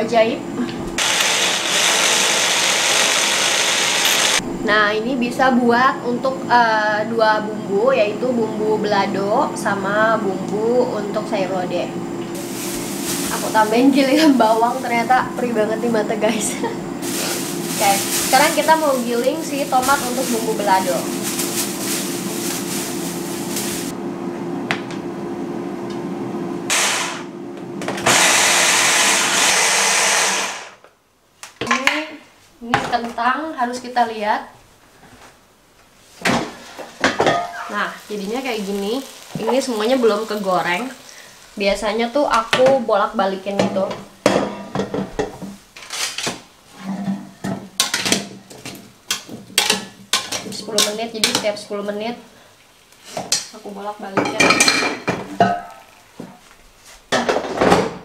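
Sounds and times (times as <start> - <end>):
stick blender pureeing: 1.0 - 4.4.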